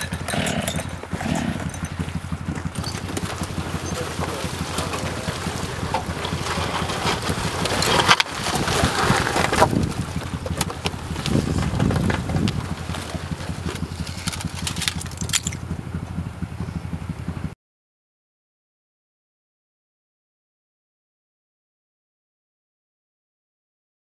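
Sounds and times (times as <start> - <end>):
ice crunching and cracking: 0.0 - 15.6
water sloshing: 0.0 - 15.8
low engine hum: 0.0 - 17.6.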